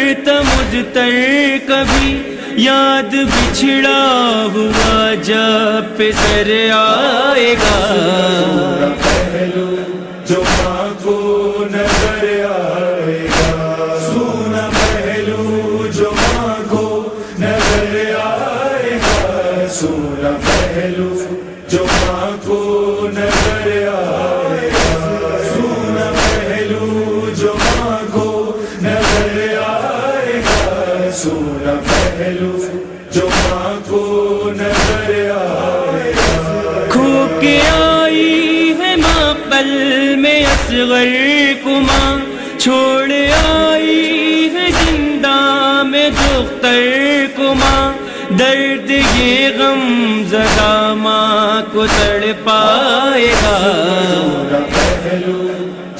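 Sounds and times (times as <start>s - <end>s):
sharp percussive hits: 0.4s - 1.0s, 1.8s - 2.5s, 3.2s - 3.9s, 4.7s - 5.3s, 6.1s - 6.6s, 7.6s - 12.4s, 13.2s - 13.8s, 14.5s - 18.2s, 18.8s - 19.6s, 20.4s - 29.6s, 30.4s - 30.9s, 31.8s - 39.5s, 40.4s - 40.9s, 41.8s - 42.5s, 43.2s - 44.0s, 44.7s - 45.2s, 46.1s - 46.7s, 47.5s - 48.2s, 49.0s - 49.6s, 50.4s - 50.9s, 51.8s - 52.4s, 53.3s - 55.9s
voices chanting: 6.9s - 38.4s.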